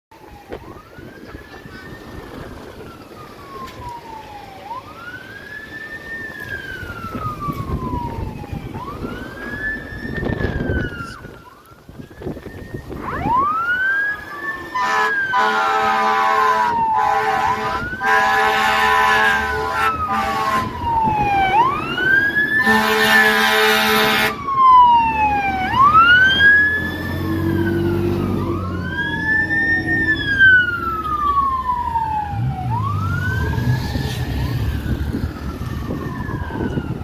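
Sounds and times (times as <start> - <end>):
fire engine siren wailing: 0.1 - 37.0
car passing: 13.1 - 37.0
loud horn blasts: 14.8 - 20.8, 22.6 - 24.4.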